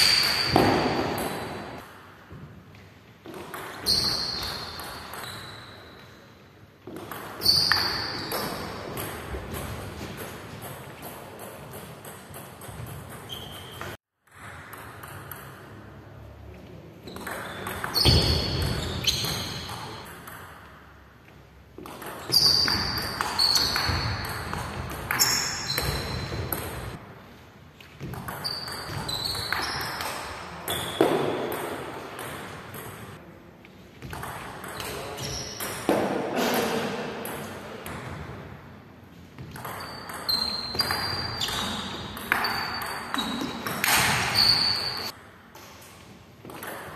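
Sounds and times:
table tennis ball hits: 0:00.0 - 0:02.5, 0:06.9 - 0:15.6, 0:21.8 - 0:27.0, 0:28.0 - 0:33.1, 0:39.4 - 0:45.7.

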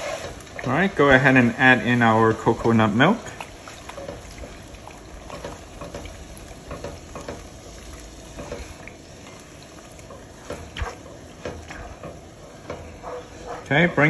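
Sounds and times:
spatula scraping a pan: 0:00.0 - 0:00.6
food bubbling and sizzling: 0:00.0 - 0:14.0.

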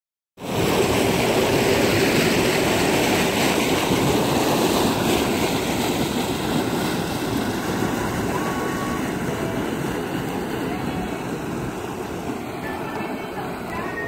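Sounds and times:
propeller wash rushing: 0:00.4 - 0:14.0
boat engine running: 0:02.6 - 0:14.0.

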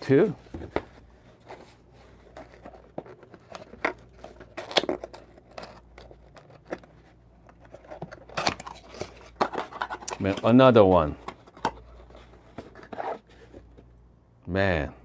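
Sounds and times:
rustling paper and cardboard: 0:00.0 - 0:13.8.

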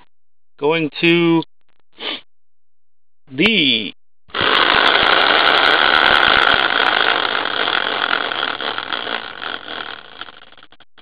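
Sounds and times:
wheel whirring on axle: 0:04.3 - 0:10.8.

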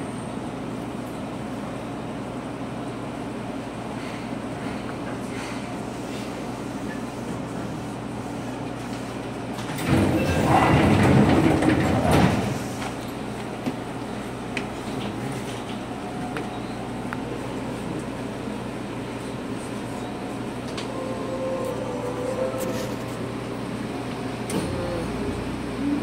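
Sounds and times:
electric train equipment hum: 0:00.0 - 0:26.0
sliding train doors rushing: 0:08.6 - 0:16.7, 0:20.3 - 0:25.1.

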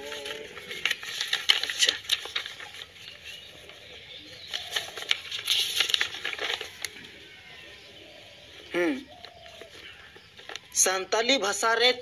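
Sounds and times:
paper rustling and crinkling: 0:00.0 - 0:07.8, 0:09.1 - 0:10.8.

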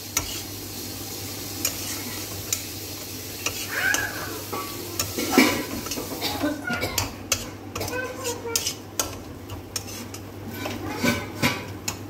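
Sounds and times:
food sizzling in a pan: 0:00.0 - 0:12.0
metal spatula scraping pan: 0:00.1 - 0:00.6, 0:01.6 - 0:02.6, 0:03.4 - 0:06.2, 0:07.0 - 0:11.8
spatula clicking against pan: 0:07.0 - 0:10.3.

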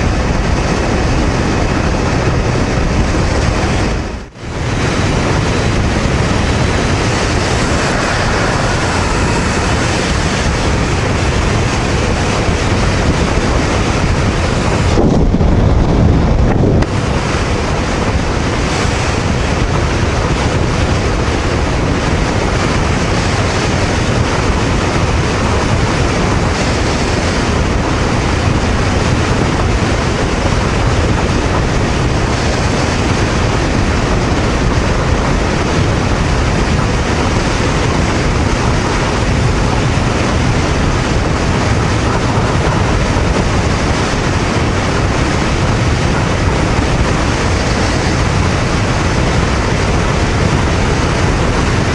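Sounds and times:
motorcycle engine running: 0:00.0 - 0:51.9
road noise: 0:00.0 - 0:51.9
wind rushing over microphone: 0:00.0 - 0:51.9.

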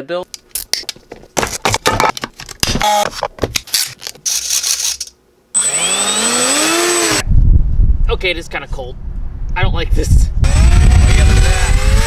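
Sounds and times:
electric fan motor whine: 0:05.5 - 0:07.6, 0:10.4 - 0:12.0
rotary tool drilling into plastic: 0:05.6 - 0:07.2, 0:10.5 - 0:12.0.

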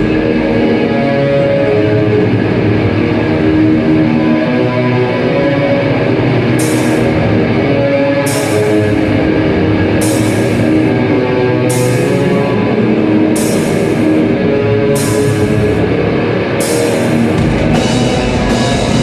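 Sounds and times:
distorted electric guitars: 0:00.0 - 0:19.0
drum kit: 0:06.6 - 0:07.4, 0:10.0 - 0:11.0, 0:13.3 - 0:14.2, 0:15.0 - 0:15.8, 0:16.5 - 0:19.0.

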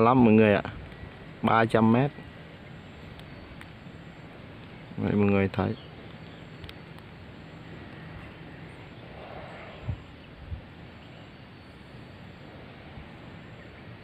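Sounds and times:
wind on microphone: 0:07.7 - 0:11.5, 0:12.4 - 0:14.0.

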